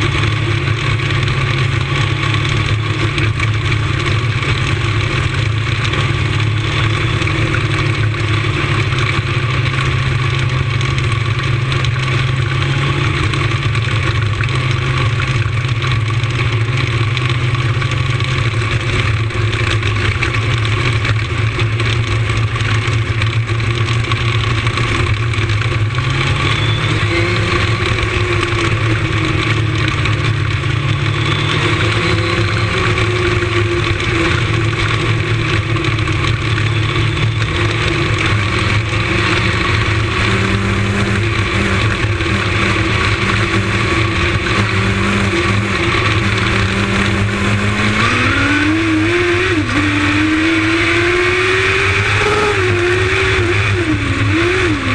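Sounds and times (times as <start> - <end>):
race car engine running: 0.0 - 54.9.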